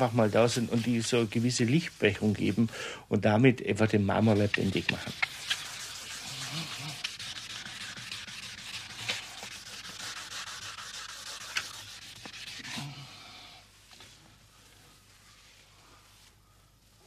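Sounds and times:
hand sanding plaster surface: 0.0s - 2.7s, 4.0s - 12.9s.

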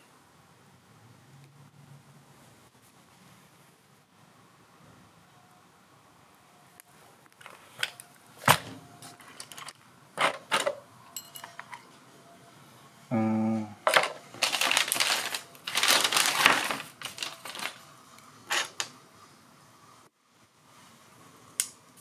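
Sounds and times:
rustling and clatter of small parts: 7.4s - 11.9s, 13.8s - 17.8s, 18.5s - 18.9s.

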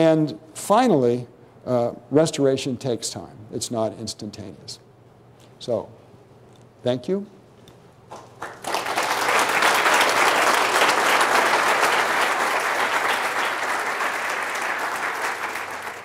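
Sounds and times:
audience applauding: 8.1s - 16.0s.

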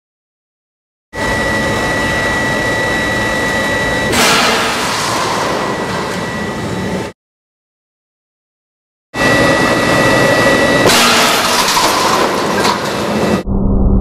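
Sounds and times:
furnace whistling tones: 1.2s - 7.1s.

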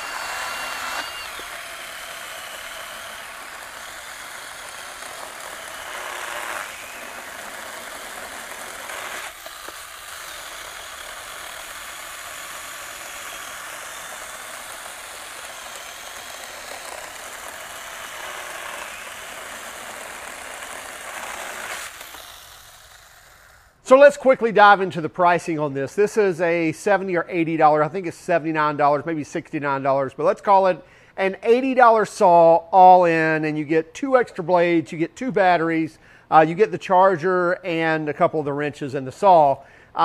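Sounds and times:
electric chainsaw cutting log: 0.0s - 23.9s.

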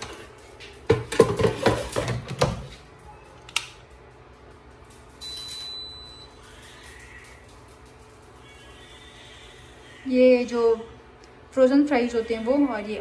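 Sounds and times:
air fryer basket clattering: 0.0s - 2.8s
high beep: 5.2s - 6.4s.

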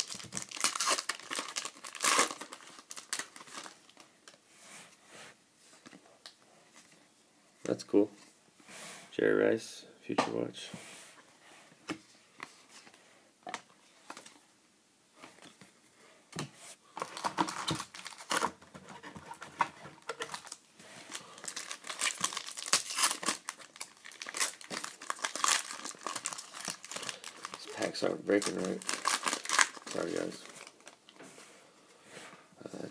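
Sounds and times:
foil wrapper crinkling: 0.0s - 4.0s, 17.0s - 18.6s, 20.0s - 31.0s.

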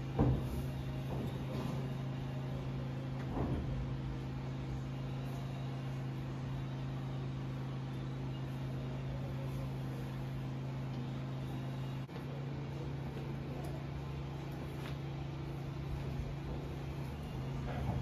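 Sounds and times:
low motor hum: 0.0s - 18.0s.

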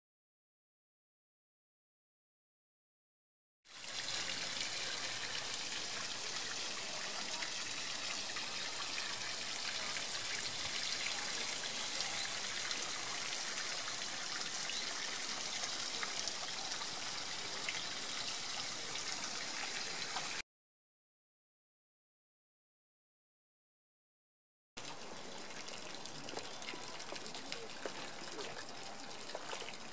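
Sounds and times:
running water trickling and splashing: 3.7s - 20.4s, 24.8s - 29.9s
faint water drips: 3.8s - 20.4s, 24.8s - 29.9s.

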